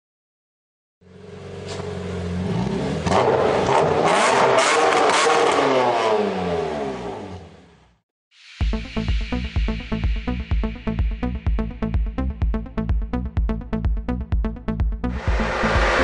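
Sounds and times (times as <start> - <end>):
car engine revving: 1.1 - 7.8, 15.1 - 16.0.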